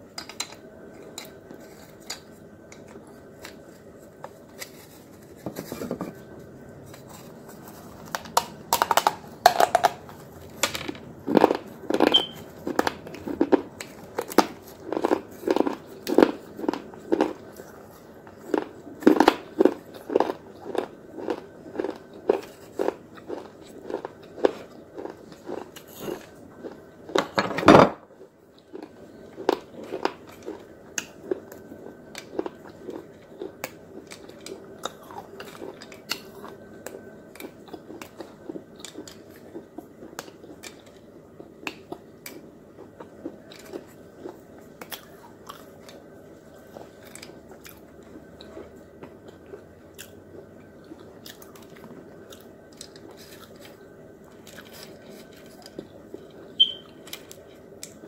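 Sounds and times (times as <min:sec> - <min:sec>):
faint steady hum: 0:00.0 - 0:58.0
crunching and chewing: 0:00.1 - 0:27.4, 0:28.2 - 0:58.0
short high squeak: 0:12.1 - 0:12.4, 0:56.6 - 0:56.9.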